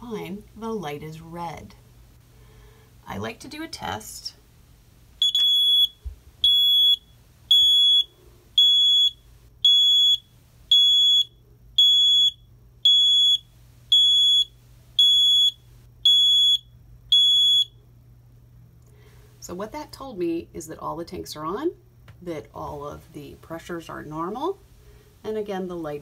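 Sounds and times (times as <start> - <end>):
high-pitched alarm beep: 5.2 - 17.8.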